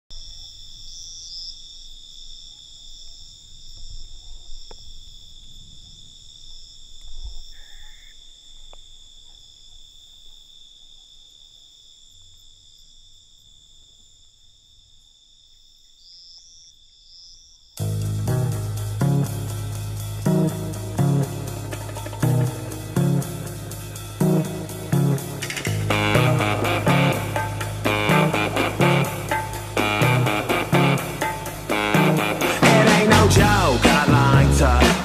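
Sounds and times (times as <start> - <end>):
crickets trilling: 0.0 - 33.1.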